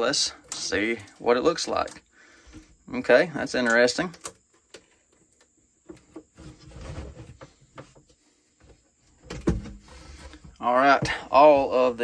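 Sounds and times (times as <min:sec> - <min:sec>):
plastic rubbing: 0:03.9 - 0:12.0.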